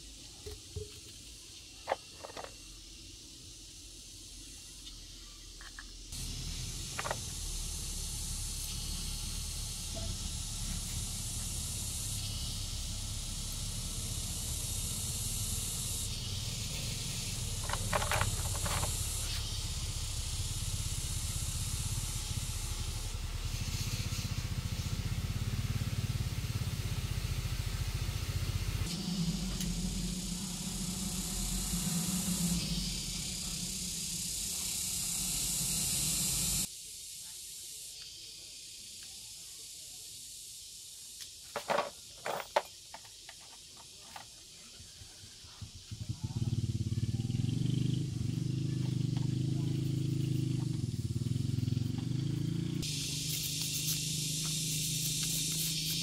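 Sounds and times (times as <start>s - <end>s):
steady high hiss: 0.0s - 56.0s
low outdoor rumble: 6.1s - 36.7s.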